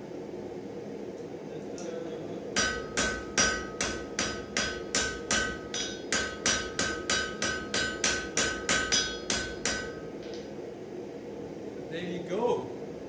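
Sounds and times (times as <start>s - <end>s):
hammer striking steel on anvil: 2.6s - 10.5s.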